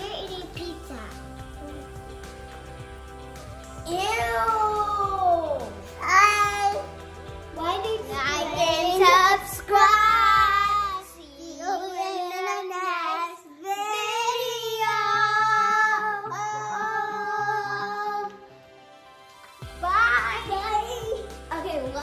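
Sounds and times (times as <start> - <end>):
music: 0.0 - 22.0
child singing: 7.6 - 18.5.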